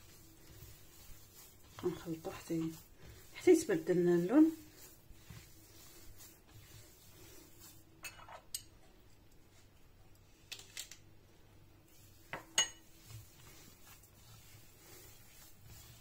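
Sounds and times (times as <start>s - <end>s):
dough kneaded by hand: 0.0s - 8.6s, 11.8s - 16.0s.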